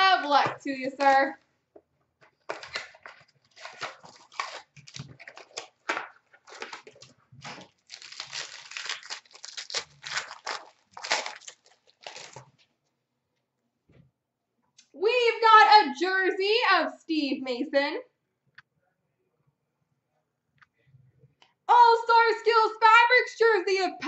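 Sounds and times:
wrapper tearing and crinkling: 0:02.4 - 0:12.6.

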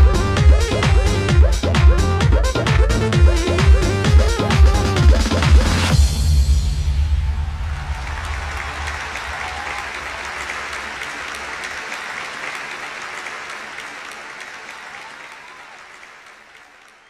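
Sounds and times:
dance music bass: 0:00.0 - 0:08.5
audience applauding: 0:07.4 - 0:17.0.

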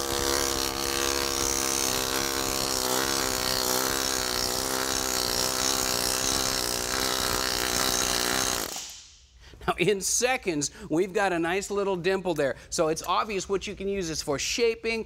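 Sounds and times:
pneumatic hammer buzzing on sheet metal: 0:00.0 - 0:09.1.

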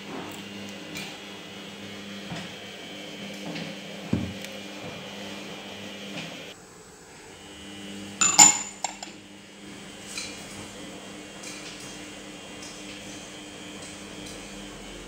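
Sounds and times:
porcelain lid clinking on glass: 0:08.2 - 0:09.1.

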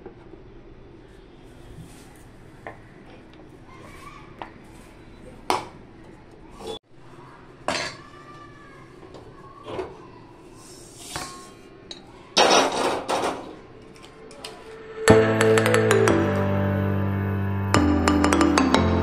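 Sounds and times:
music: 0:14.8 - 0:19.0.

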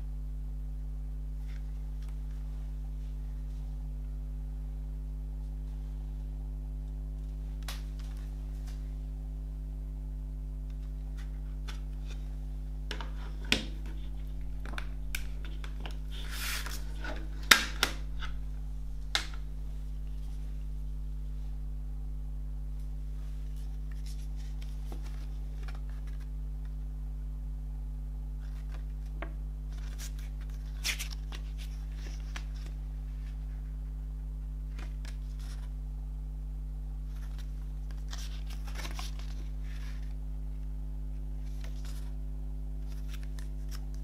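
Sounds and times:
steady low hum: 0:00.0 - 0:44.0
paper booklet handling: 0:10.7 - 0:21.2, 0:23.5 - 0:26.3, 0:28.4 - 0:33.6, 0:34.7 - 0:35.7, 0:37.1 - 0:40.2, 0:41.4 - 0:42.2, 0:42.8 - 0:44.0
plastic scrape: 0:12.9 - 0:20.4.

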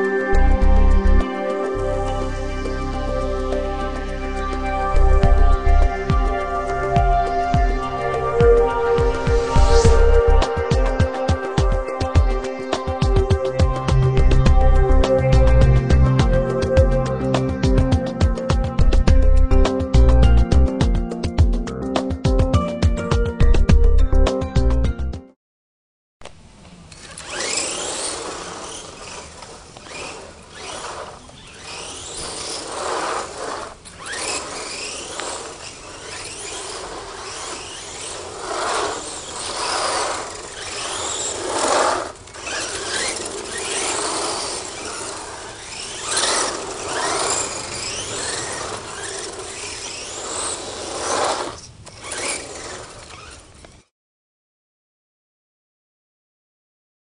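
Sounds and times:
rc truck electric motor whine: 0:00.0 - 0:17.8, 0:26.8 - 0:53.9.

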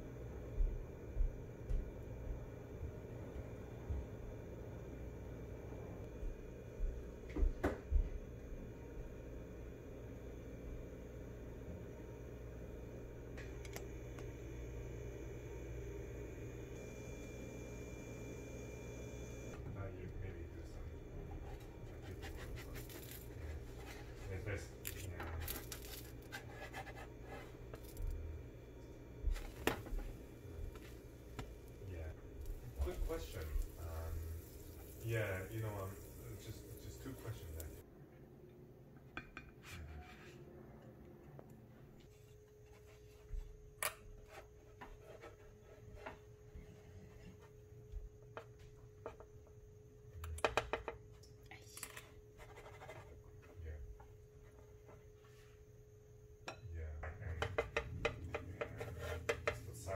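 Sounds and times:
faint steady hum: 0:00.0 - 0:59.9
spatula scraping frying pan: 0:58.2 - 0:59.6.

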